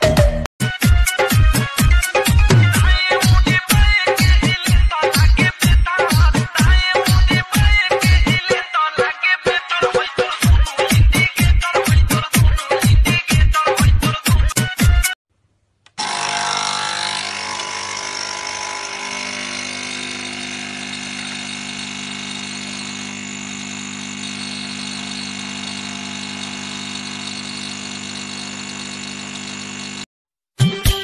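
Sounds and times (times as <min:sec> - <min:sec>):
dance music: 0:00.0 - 0:15.2
espresso machine pump humming: 0:17.6 - 0:30.1.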